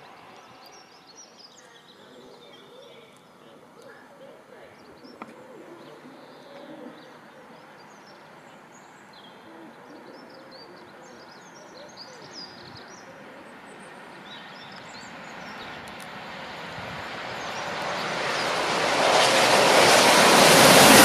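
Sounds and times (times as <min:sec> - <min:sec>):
small birds chirping: 0:00.0 - 0:20.0
steam locomotive rushing hiss: 0:15.1 - 0:21.0.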